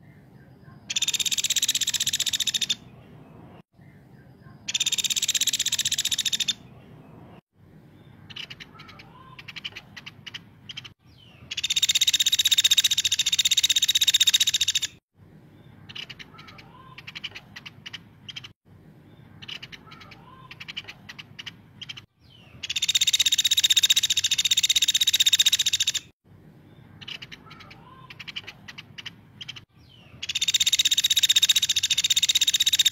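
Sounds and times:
woodpecker dry rattling trill: 0.9s - 2.8s, 4.7s - 6.6s, 11.5s - 15.0s, 22.6s - 26.1s, 30.2s - 32.9s
woodpecker ticking notes: 0.9s - 2.8s, 4.7s - 6.6s, 8.3s - 15.0s, 22.6s - 26.1s, 30.2s - 32.9s.

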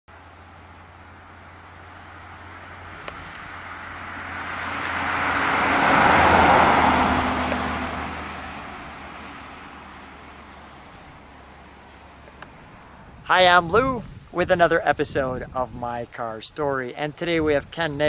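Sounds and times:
car driving past: 0.2s - 13.2s.

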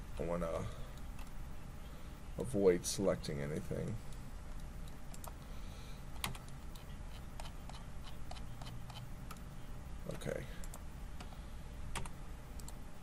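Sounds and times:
faint low hum: 0.0s - 13.0s
keyboard and mouse clicking: 6.2s - 9.4s, 11.9s - 12.8s.

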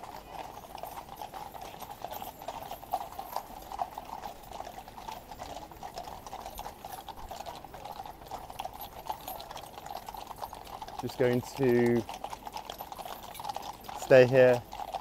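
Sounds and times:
horses hooves clip-clopping on road: 0.0s - 15.0s.

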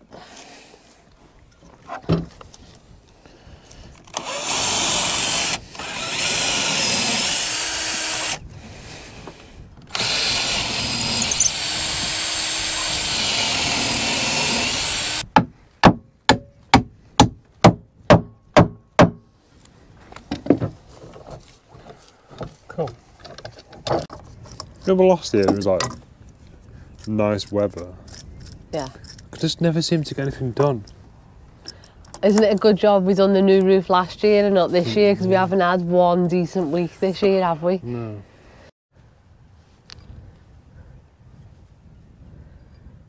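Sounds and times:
handheld power tool running: 4.1s - 8.4s, 9.9s - 15.2s
sharp knocks: 15.3s - 19.3s.

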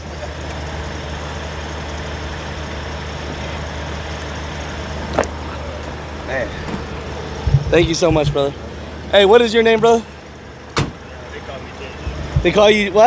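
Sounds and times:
diesel truck engine idling: 0.0s - 13.0s
short bump: 6.6s - 8.6s.

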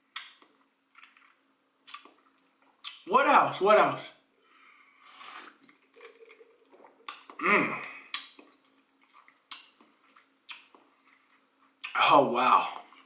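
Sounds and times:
mouth clicks and lip smacks: 0.1s - 3.1s, 5.2s - 7.4s, 8.1s - 12.0s
sips and swallows: 5.0s - 7.4s, 8.0s - 12.0s
short vocal sound: 7.3s - 8.2s.

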